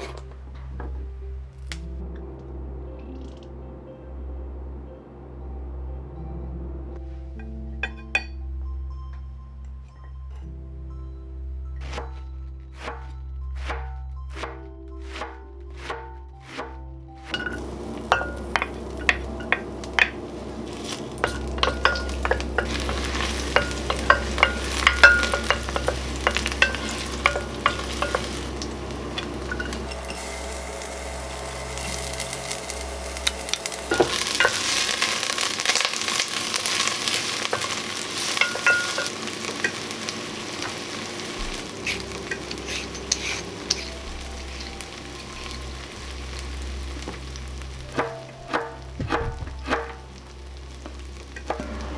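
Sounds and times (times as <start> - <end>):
garlic sizzling in hot oil: 17.2 - 51.9.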